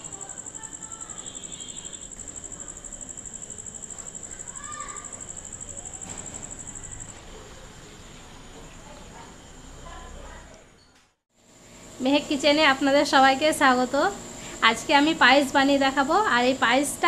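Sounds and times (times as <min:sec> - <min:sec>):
cricket trilling: 0:00.0 - 0:10.9.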